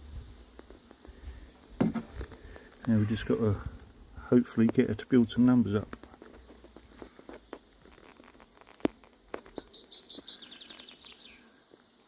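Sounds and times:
small bird chirping: 9.4s - 11.6s.

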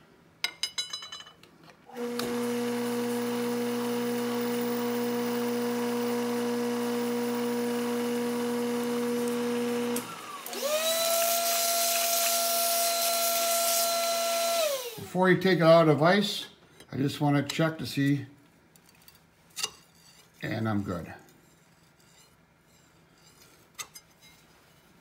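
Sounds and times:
shop vacuum whine: 1.9s - 15.2s
milling machine cutting steel: 2.0s - 15.0s.

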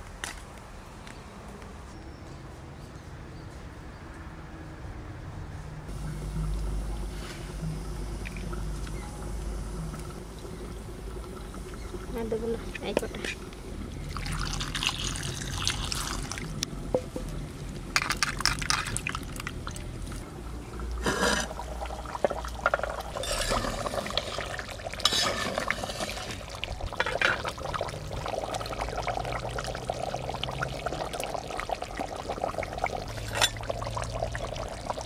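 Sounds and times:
water pouring over tomatoes: 13.9s - 16.6s, 21.6s - 35.0s
curry bubbling at a simmer: 18.5s - 35.0s.

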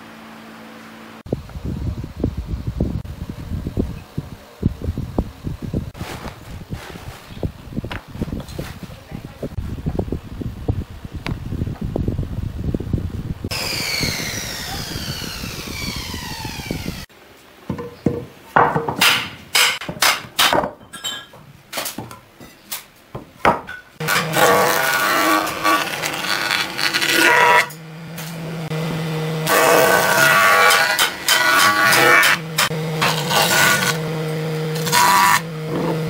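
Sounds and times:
falling whine: 12.9s - 17.1s.

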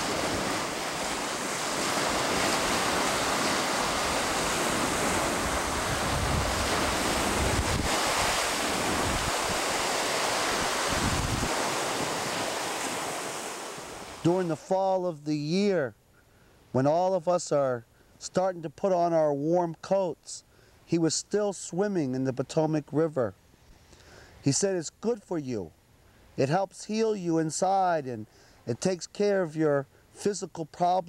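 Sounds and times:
wind buffeting microphone: 0.0s - 13.2s
small waves breaking on shore: 0.0s - 15.1s.

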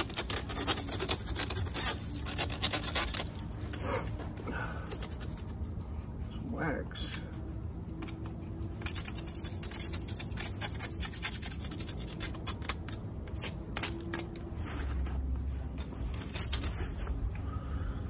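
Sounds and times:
tool scraping beehive frame: 0.0s - 3.8s.

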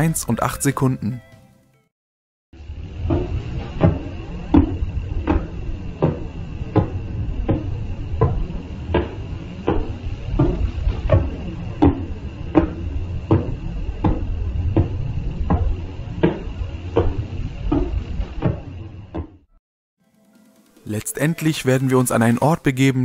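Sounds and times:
regular tick-thump: 3.0s - 19.5s.

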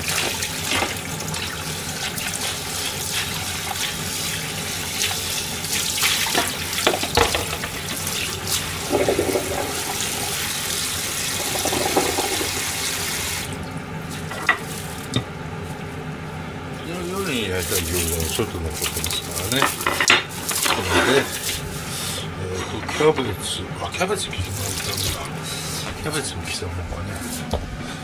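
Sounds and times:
tap running into steel sink: 6.3s - 7.8s, 11.4s - 12.7s
dishes clattering: 6.3s - 10.4s, 11.3s - 12.9s, 14.2s - 15.3s, 18.8s - 21.4s.

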